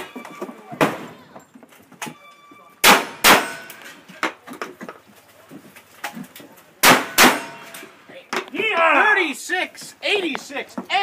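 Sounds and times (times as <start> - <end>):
gunshots: 2.8 - 3.8, 6.8 - 7.8.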